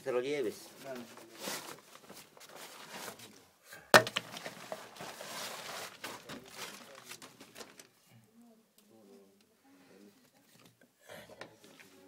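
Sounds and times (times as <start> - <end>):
knocks: 4.0 - 4.3
rustling and scraping against rock: 4.0 - 7.8.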